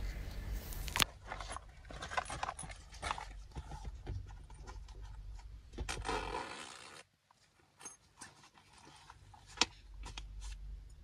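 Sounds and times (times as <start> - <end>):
bag clicks and scratches: 1.0 - 5.2
zipper closing: 5.9 - 7.1.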